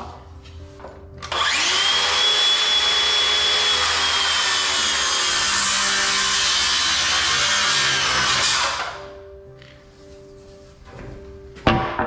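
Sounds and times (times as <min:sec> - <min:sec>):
circular saw cutting wood: 0:01.2 - 0:09.1.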